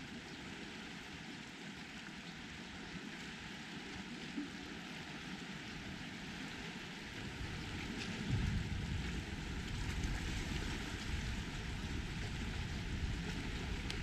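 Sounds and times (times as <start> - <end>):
wind hiss on microphone: 0.0 - 14.0
low wind buffeting rumble: 6.9 - 14.0.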